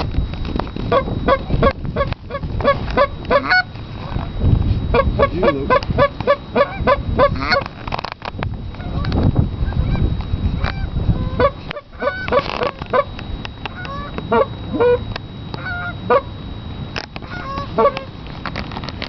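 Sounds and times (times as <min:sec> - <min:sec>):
goose honking: 0:00.9 - 0:03.7, 0:04.9 - 0:07.7, 0:10.6 - 0:13.1, 0:13.7 - 0:15.0, 0:15.6 - 0:16.3, 0:17.2 - 0:18.1.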